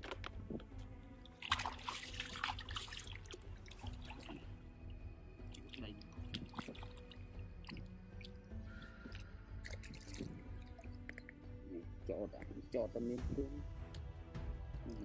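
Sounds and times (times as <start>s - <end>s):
water dripping: 0.2s - 11.7s
hands sloshing in muddy water: 1.3s - 4.6s, 5.4s - 10.9s.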